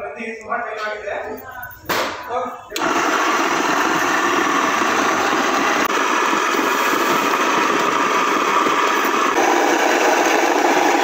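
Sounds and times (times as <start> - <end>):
electric flour mill grinding: 2.8 - 11.0.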